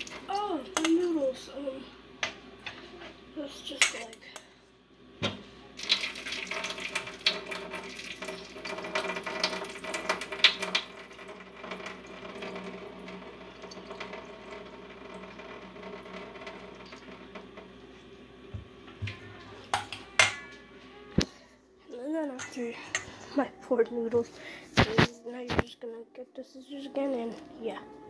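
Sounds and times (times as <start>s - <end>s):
water pouring into a steel sink: 0.0s - 0.9s, 5.8s - 18.0s.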